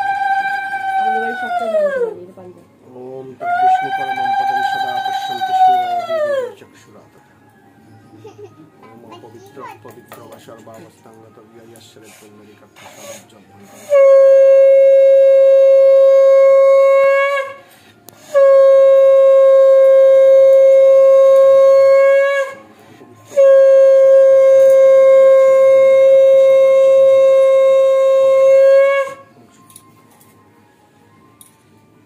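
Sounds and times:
conch shell blasts: 12.8 - 22.6, 23.3 - 29.4.

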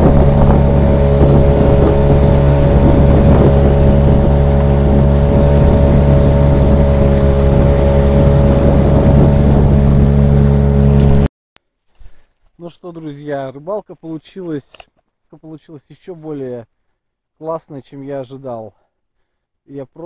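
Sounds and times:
outboard motor running: 0.0 - 11.3
water rushing along hull: 0.0 - 11.3.

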